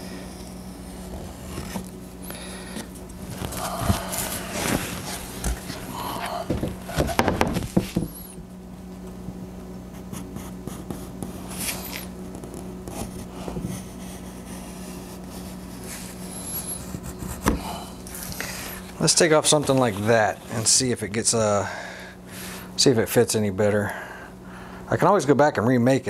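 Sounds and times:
steady low hum: 0:00.0 - 0:26.0
wooden board knocking on bench: 0:06.5 - 0:08.1
marker scratching on wood: 0:10.0 - 0:17.6.

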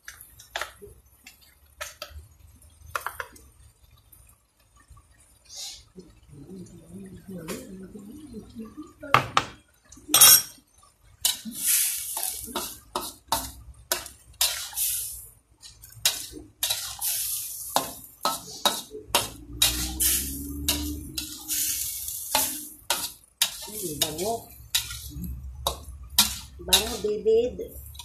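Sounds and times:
metal fork scraping a metal wok: 0:10.2 - 0:10.5, 0:15.6 - 0:27.1.

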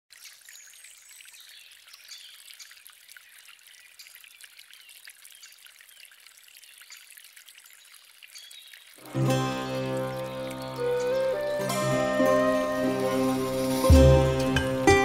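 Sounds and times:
water trickling and dripping: 0:00.1 - 0:15.0.

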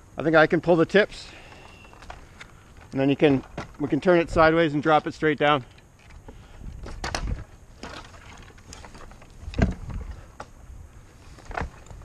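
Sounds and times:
branch knocks and twig cracks: 0:06.8 - 0:10.6.

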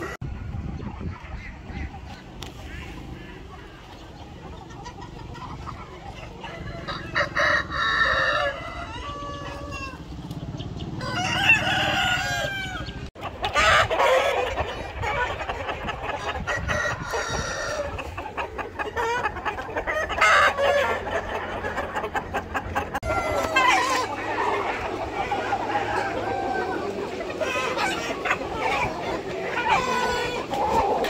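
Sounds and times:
chickens clucking: 0:00.0 - 0:31.0
roosters crowing: 0:06.2 - 0:15.4, 0:16.1 - 0:18.2, 0:18.9 - 0:22.0, 0:22.8 - 0:31.0.

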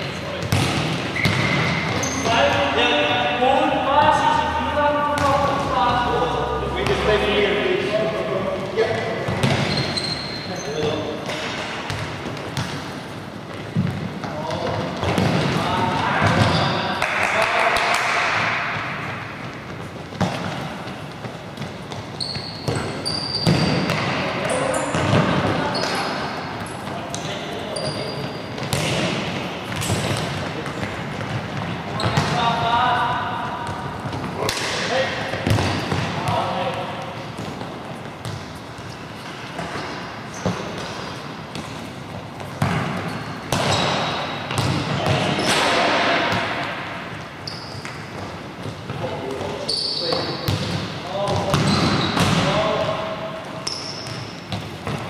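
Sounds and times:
shoes squeaking on court: 0:00.0 - 0:02.8, 0:08.2 - 0:15.6, 0:16.2 - 0:17.0, 0:19.0 - 0:55.0
balls kicked and bouncing in hall: 0:00.0 - 0:55.0
shoe squeaks: 0:01.1 - 0:02.7, 0:09.3 - 0:11.5, 0:16.2 - 0:17.0, 0:21.9 - 0:28.7, 0:38.2 - 0:41.4, 0:43.0 - 0:44.4, 0:47.3 - 0:48.3, 0:49.5 - 0:50.5, 0:51.6 - 0:52.3, 0:53.5 - 0:54.8.

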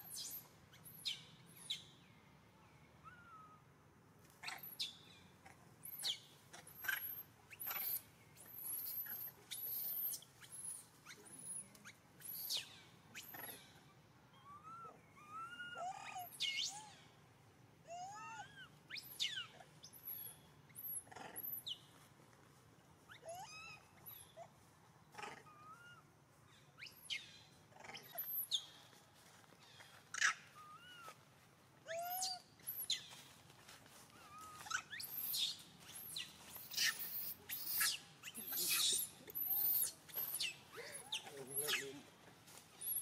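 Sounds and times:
monkey coos and squeaks: 0:00.0 - 0:01.8, 0:04.4 - 0:04.9, 0:05.8 - 0:17.0, 0:17.9 - 0:21.8, 0:23.1 - 0:24.5, 0:25.2 - 0:26.0, 0:26.8 - 0:28.8, 0:29.6 - 0:31.2, 0:31.9 - 0:33.1, 0:34.1 - 0:42.1, 0:42.8 - 0:43.0
monkey shrill squeals: 0:06.8 - 0:11.6, 0:31.9 - 0:33.1, 0:34.3 - 0:41.9.

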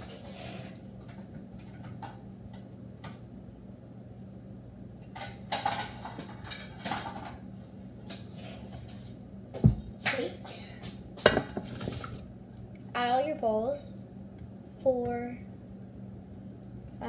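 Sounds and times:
steady low hum: 0:00.0 - 0:17.0
dishes clattering: 0:05.2 - 0:07.4, 0:11.2 - 0:12.2.

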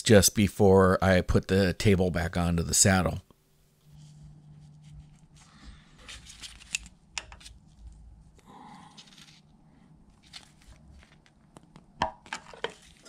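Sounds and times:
glove rustling: 0:08.9 - 0:13.0.

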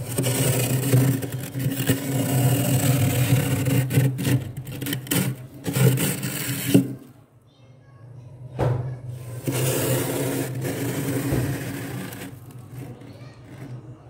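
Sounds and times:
metal rim scraping frost: 0:00.0 - 0:07.1, 0:09.2 - 0:13.4.

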